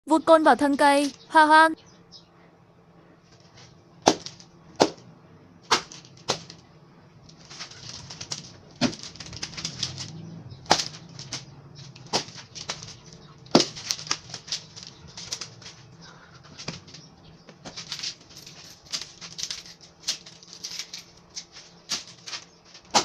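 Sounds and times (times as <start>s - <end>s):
sticks clacking: 7.3s - 23.0s.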